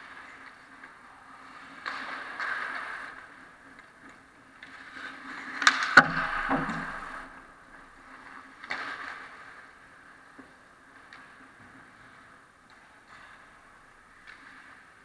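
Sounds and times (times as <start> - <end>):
hockey sticks and puck clacking: 0.0 - 15.0
skates scraping on ice: 0.0 - 15.0
low thud: 6.0 - 8.0.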